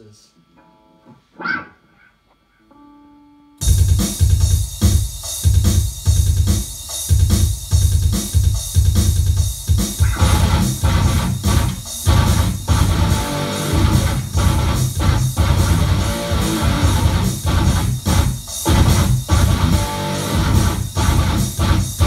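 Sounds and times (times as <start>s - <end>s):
distorted electric guitar riff: 0.4s - 4.0s, 10.0s - 22.0s
electric guitar chord: 10.0s - 22.0s.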